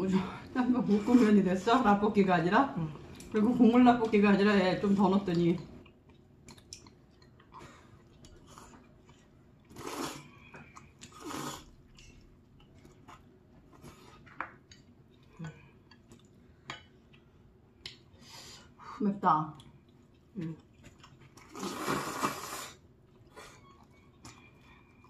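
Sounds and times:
loud eating sounds: 4.8s - 18.8s, 19.5s - 25.0s
chewing noodles: 5.3s - 18.8s, 19.5s - 25.0s.

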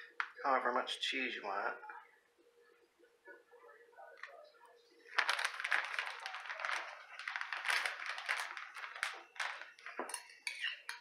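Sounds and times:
plastic bag crinkling: 5.0s - 11.0s.

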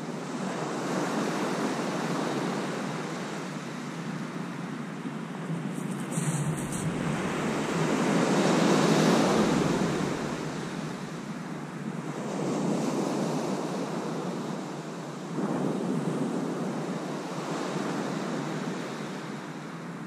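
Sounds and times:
sea waves breaking on beach: 5.3s - 19.7s.

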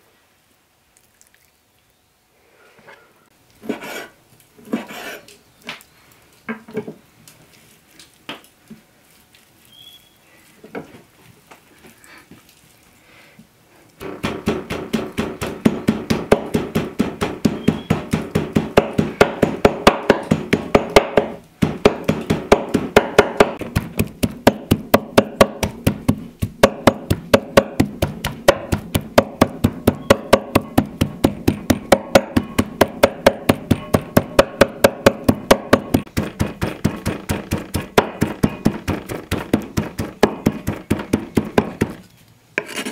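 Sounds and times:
knife chopping meat on wooden board: 14.0s - 42.0s.

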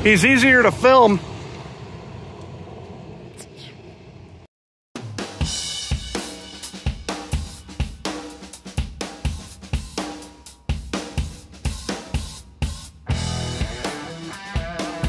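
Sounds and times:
drum kit playing steady beat: 5.0s - 15.0s
cymbals and hi-hat: 5.2s - 15.0s.

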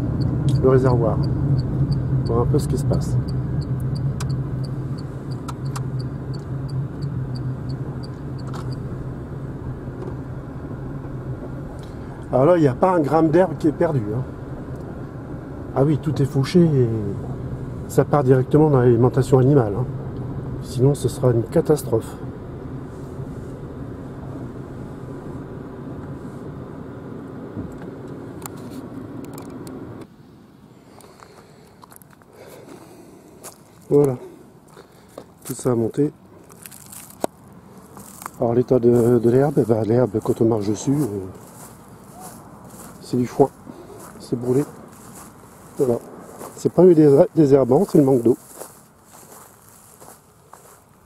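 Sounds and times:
turn signal ticking: 0.0s - 10.2s
tyre and road noise: 0.0s - 51.0s.

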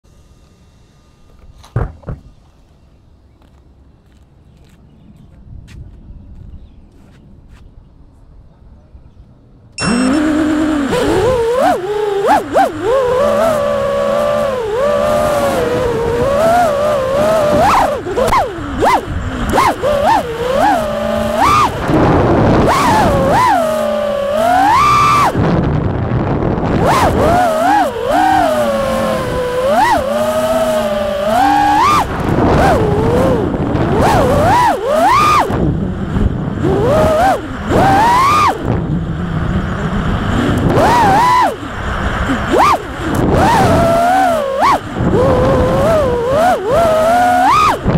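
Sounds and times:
steady rushing noise: 9.4s - 47.9s
quadcopter motors whining: 9.8s - 47.9s.

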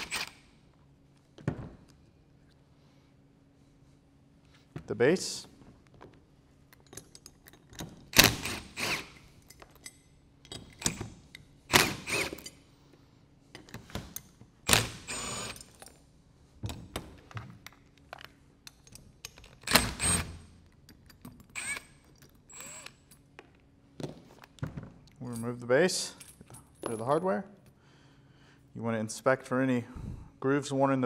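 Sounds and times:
cordless drill bursts: 0.0s - 0.4s, 8.2s - 9.2s, 11.7s - 12.4s, 14.7s - 15.6s, 19.7s - 20.4s, 21.6s - 21.9s, 22.5s - 23.0s
bolts and washers clinking: 5.8s - 8.2s, 9.2s - 11.6s, 15.5s - 16.0s, 16.6s - 19.9s, 20.6s - 27.3s.

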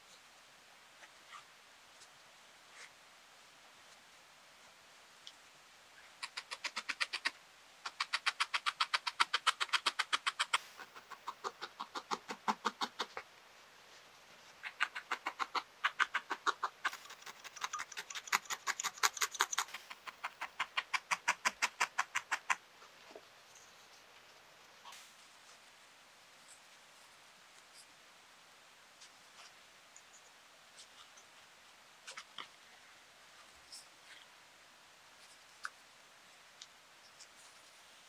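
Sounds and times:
felting needle ticking into foam: 14.6s - 22.6s.

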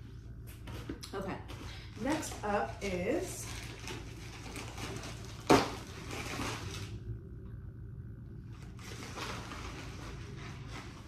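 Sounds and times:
packaging rustling: 1.5s - 6.9s.

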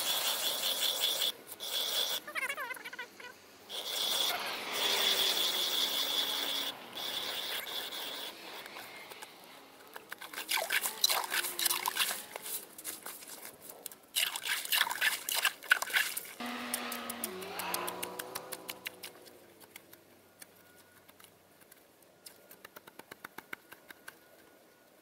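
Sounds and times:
ice auger blades scraping ice: 10.4s - 13.4s.

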